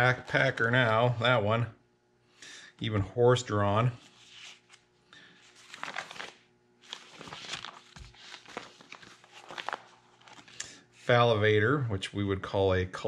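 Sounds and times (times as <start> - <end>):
plastic sheet protectors crinkling: 5.4 - 10.6.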